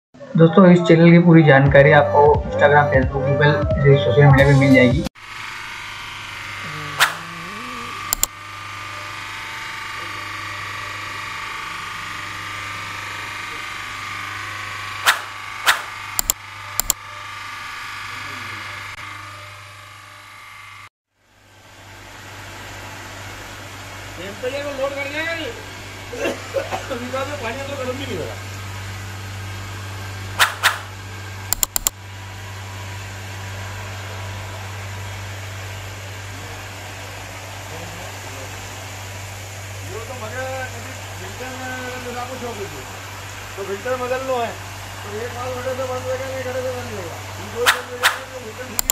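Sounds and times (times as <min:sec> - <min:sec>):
machinery mechanical hum: 0:00.2 - 0:48.9
sharp clicks: 0:07.0 - 0:07.3, 0:08.1 - 0:08.3, 0:15.0 - 0:17.0, 0:30.4 - 0:30.9, 0:31.5 - 0:32.0, 0:47.7 - 0:48.9
loud sharp knocks: 0:15.0 - 0:16.0.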